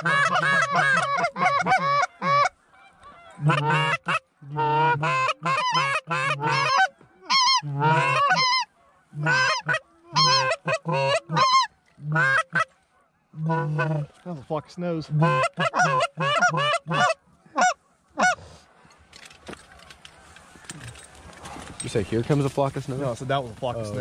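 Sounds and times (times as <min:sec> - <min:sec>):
geese honking: 0:00.0 - 0:18.8.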